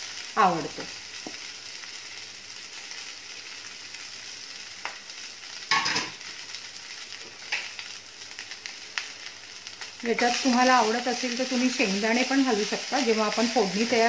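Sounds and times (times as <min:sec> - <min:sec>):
food sizzling in oil: 0:00.0 - 0:14.0
pan clatter: 0:05.7 - 0:06.2.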